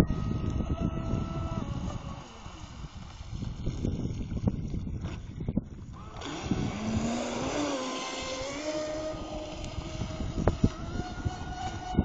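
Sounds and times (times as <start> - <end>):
electric boat motor whining: 0.0 - 12.0.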